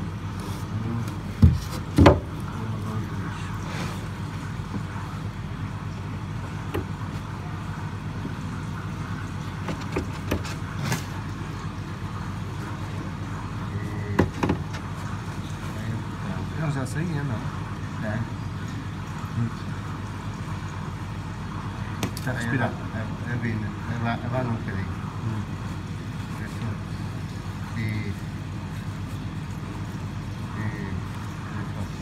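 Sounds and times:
aquarium equipment humming: 0.0 - 32.0
sharp knocks and clicks: 9.6 - 11.0.

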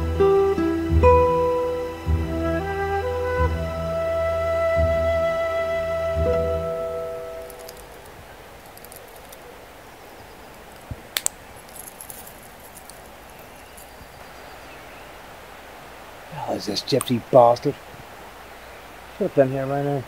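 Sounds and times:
film music: 0.0 - 8.1
creek rushing: 0.0 - 20.0.

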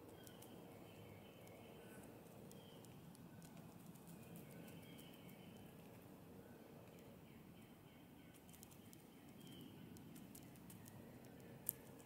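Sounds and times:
woodpecker pecking ticks: 0.0 - 6.0, 8.3 - 12.0
distant bird calls: 0.0 - 10.9.

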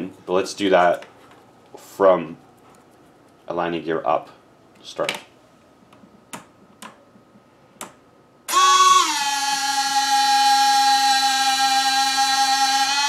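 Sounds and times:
electric motor whining: 8.5 - 13.0.

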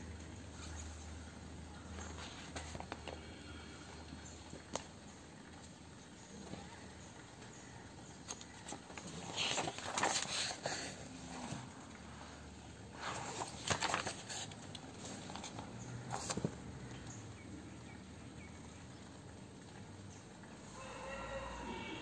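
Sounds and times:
paper pages turning: 2.0 - 3.2, 8.3 - 11.0, 12.9 - 16.5
book cover taps and crinkles: 13.1 - 16.6.

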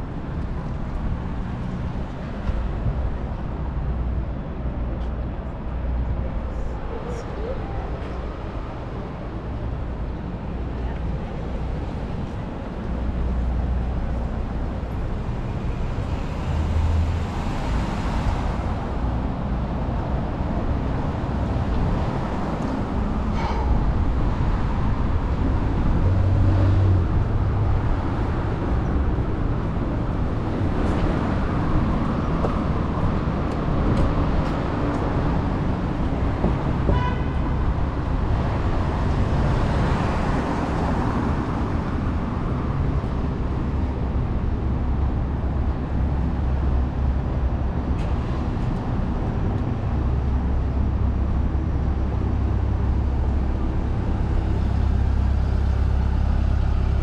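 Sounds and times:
cars passing: 0.0 - 57.0
car horn toot: 36.9 - 37.4.

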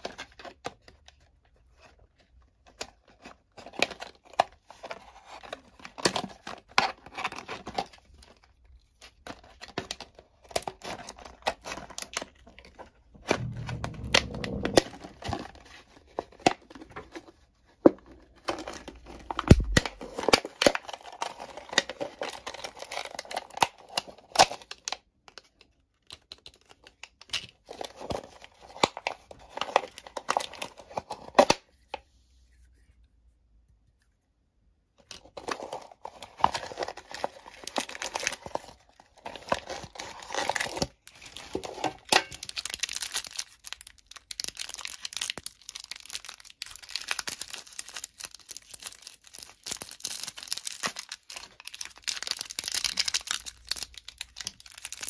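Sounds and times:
foil crinkling and tearing: 18.3 - 25.0, 35.4 - 55.0.

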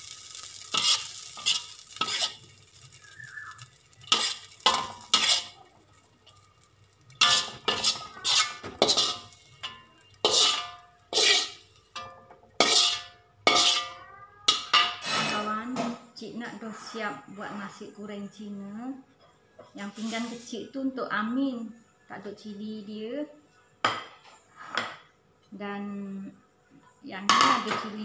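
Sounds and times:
spatula scraping a wok: 0.0 - 15.6, 19.8 - 20.6, 24.5 - 25.0
light sizzle: 0.0 - 16.6, 19.7 - 21.6.

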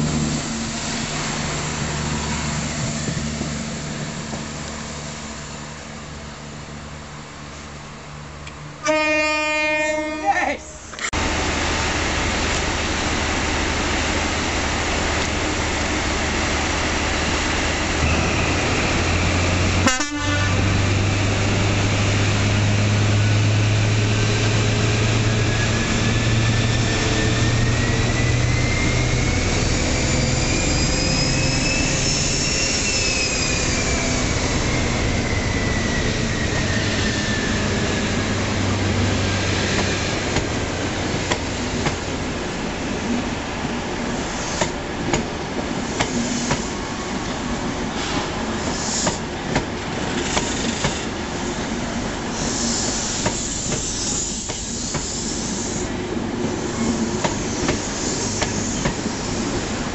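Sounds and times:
diesel train engine hum: 0.0 - 59.9
rising whine: 22.1 - 40.2.

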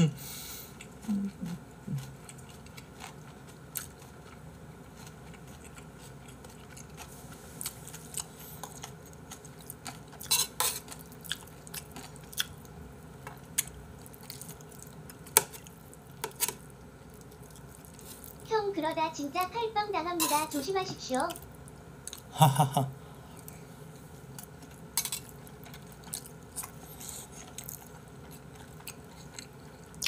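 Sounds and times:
chewing: 0.7 - 18.4, 24.3 - 30.0.

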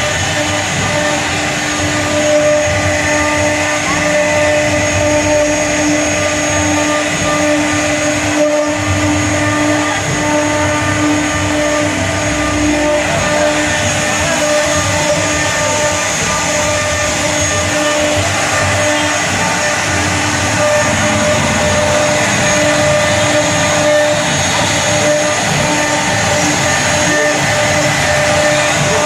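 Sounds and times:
router machine humming and whining: 0.0 - 29.0.

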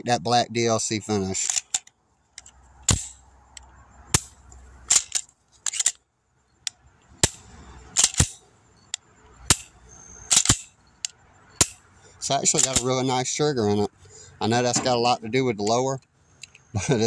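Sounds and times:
pistol metallic clicks: 1.4 - 6.0, 6.6 - 11.8, 12.5 - 12.9.

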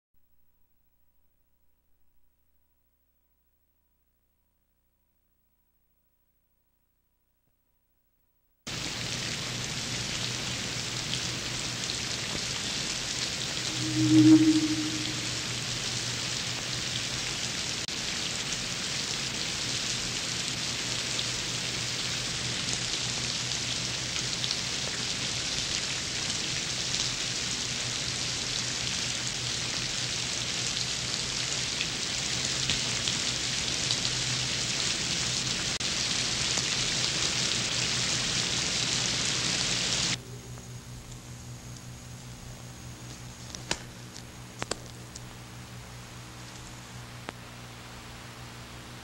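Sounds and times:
steady hissing noise: 8.7 - 16.6
low hum: 13.6 - 16.0.

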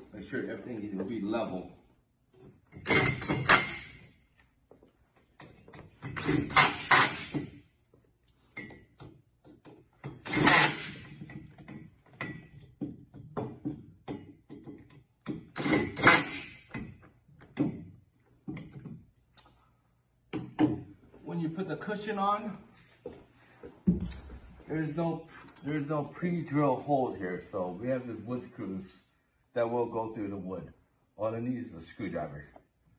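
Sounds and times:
cordless drill driving bolts: 2.8 - 4.0, 6.1 - 7.5, 10.1 - 11.3, 15.5 - 16.6
metal frame clicks and knocks: 11.0 - 15.6.

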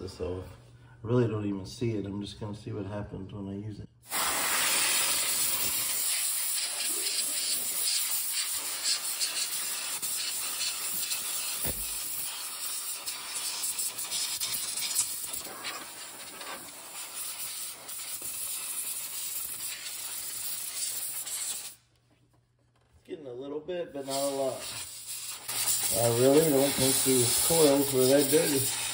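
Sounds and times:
compressed gas duster hissing: 4.0 - 21.8, 24.0 - 28.9.

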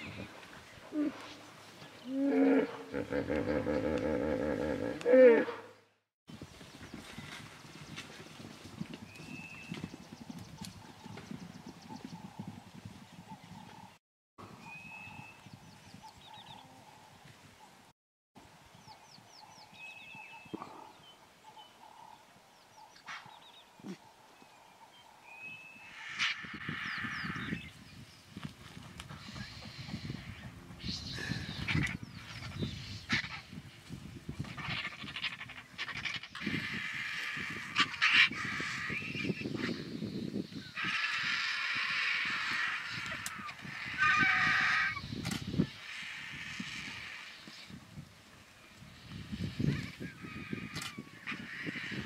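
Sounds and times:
birds chirping and trilling: 0.0 - 8.0, 9.0 - 14.0, 14.6 - 17.8, 18.7 - 47.8, 48.4 - 52.0
vultures calling harshly: 25.8 - 27.6, 29.1 - 33.5, 34.4 - 40.0, 40.6 - 47.7, 48.5 - 52.0.

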